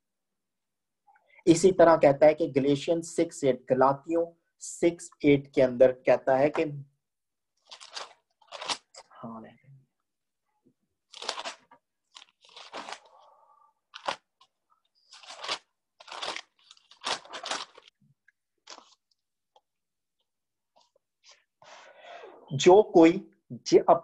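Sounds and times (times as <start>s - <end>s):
paper pages rustling: 7.6s - 9.0s, 11.1s - 13.2s, 13.9s - 18.0s, 18.6s - 19.6s.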